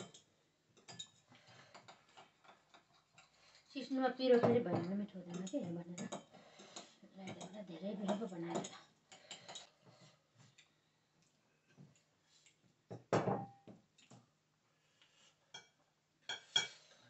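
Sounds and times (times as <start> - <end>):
cutlery clinking on ceramic plates: 0.0 - 3.3, 4.4 - 9.7, 15.5 - 16.8.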